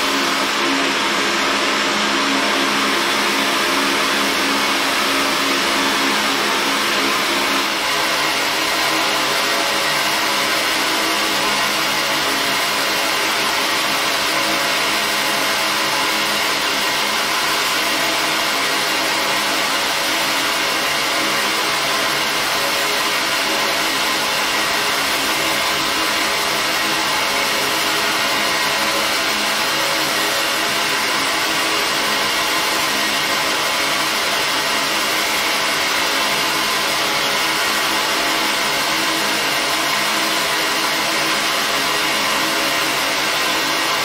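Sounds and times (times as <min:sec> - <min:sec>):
airy blower hum: 0:00.0 - 0:14.5.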